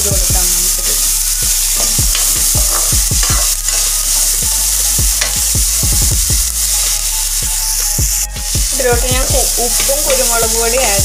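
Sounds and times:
vegetables sizzling in oil: 0.0 - 11.0
metal spoon scraping a pan: 0.5 - 5.5.

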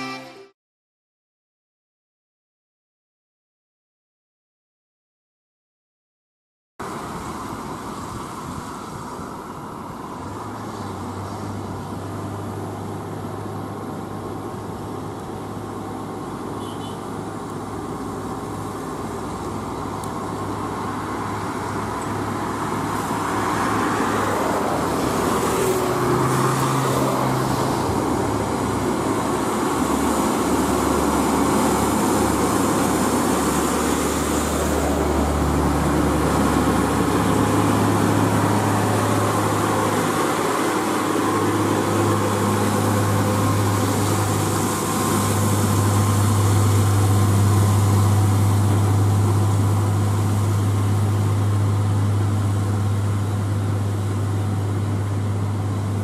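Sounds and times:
cars passing: 6.8 - 56.0
tyre noise on wet road: 6.8 - 56.0
truck diesel engine running: 27.6 - 56.0.

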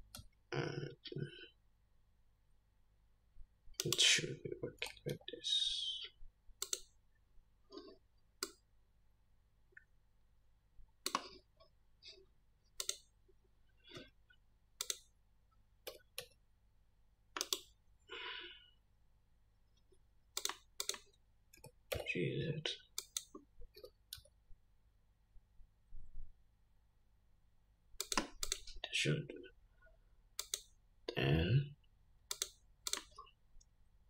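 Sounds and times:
mouse and keyboard clicks: 6.6 - 6.9, 17.4 - 17.7, 20.4 - 22.1, 28.0 - 28.8, 30.4 - 30.7, 32.3 - 33.2.

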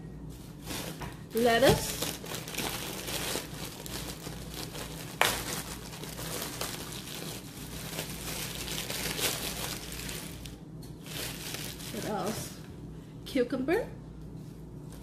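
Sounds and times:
plastic bag crinkling: 0.6 - 12.6.

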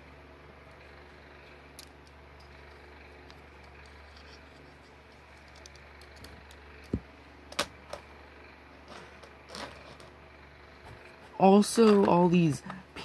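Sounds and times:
plastic pieces clicking: 1.8 - 8.0.

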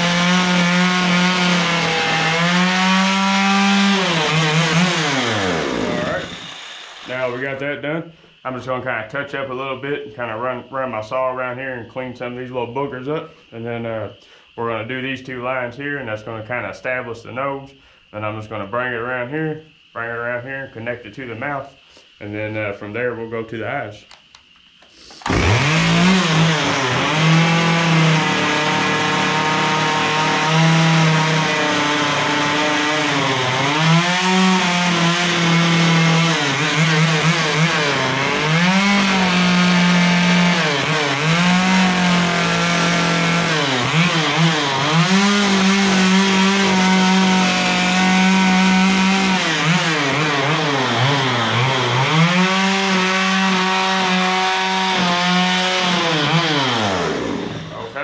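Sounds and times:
chainsaw cutting log: 0.0 - 7.6, 25.0 - 58.0.

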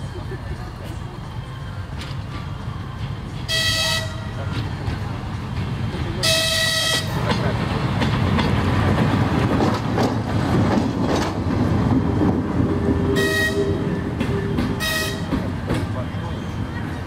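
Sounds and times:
diesel train rumbling past: 0.0 - 17.0
wheels clicking over rail joints: 4.3 - 16.2
short train horn toots: 13.1 - 15.3.

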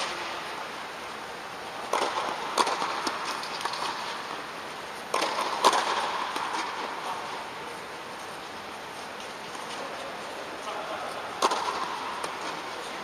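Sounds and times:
tennis balls hit with rackets: 1.8 - 4.4, 5.0 - 7.5, 11.3 - 13.0
tennis balls bouncing on court: 1.8 - 7.5, 11.4 - 13.0.

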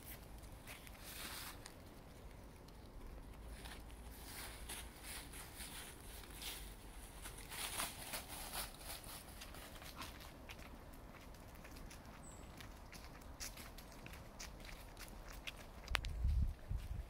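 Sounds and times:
footsteps on leaves: 0.0 - 1.8, 3.6 - 10.7
dry leaves crackling and rustling: 0.0 - 16.5.

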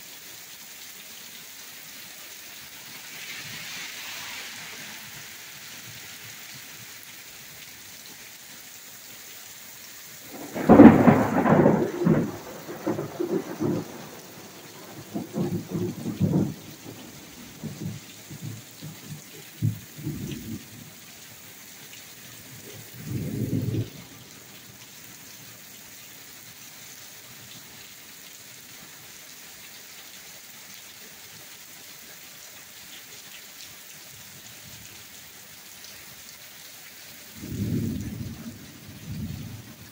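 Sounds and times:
heavy rain on pavement: 0.0 - 39.9
thunder rumbling: 10.2 - 20.8, 23.0 - 24.2, 37.4 - 39.9.

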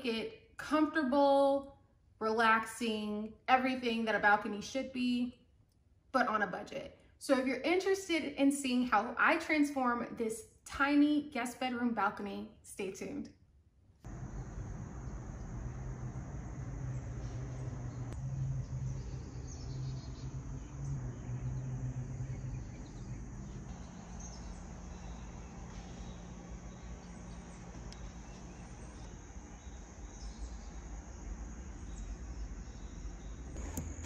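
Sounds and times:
low hum: 14.0 - 34.0
faint insect chirping: 14.1 - 33.5.

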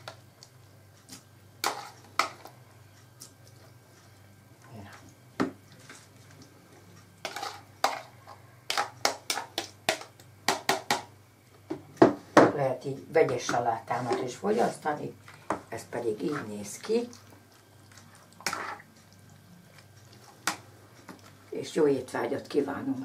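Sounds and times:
spoon stirring salad in bowl: 7.2 - 10.3, 13.2 - 21.4.

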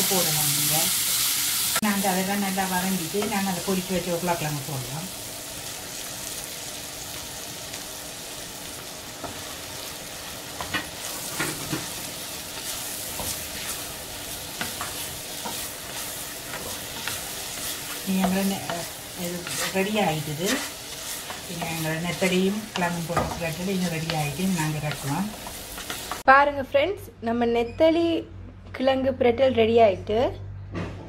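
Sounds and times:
sauce sizzling in a pot: 0.0 - 26.3
spatula scraping and knocking pot: 14.5 - 26.2.

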